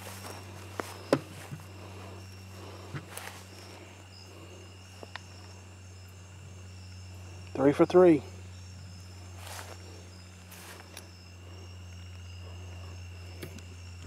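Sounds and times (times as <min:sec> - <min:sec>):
footsteps in grass: 0:00.0 - 0:05.5, 0:09.0 - 0:11.1
crickets chirring: 0:00.0 - 0:14.0
low hum: 0:00.0 - 0:14.0.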